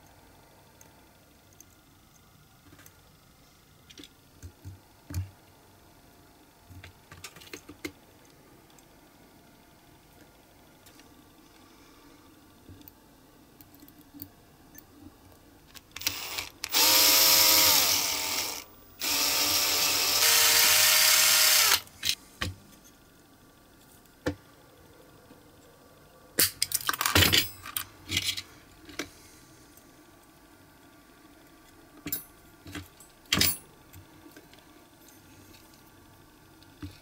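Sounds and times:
electric drill drilling into metal: 0:16.0 - 0:21.9.

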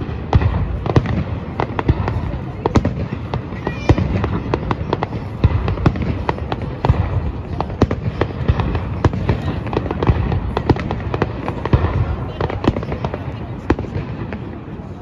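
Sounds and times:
fireworks bursting bangs: 0:00.0 - 0:15.0.

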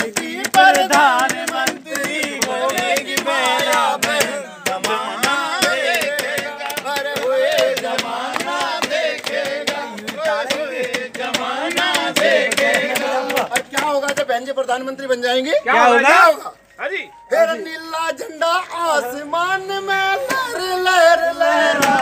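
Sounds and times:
lead voice singing: 0:00.0 - 0:13.8, 0:18.9 - 0:22.0
group of men singing: 0:00.0 - 0:14.3, 0:18.0 - 0:22.0
sharp rhythmic beats: 0:00.0 - 0:18.2.

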